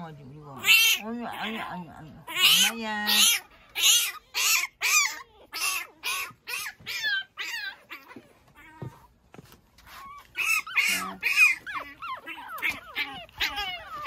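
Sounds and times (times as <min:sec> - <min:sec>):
puppy whining: 0:00.5 - 0:14.0.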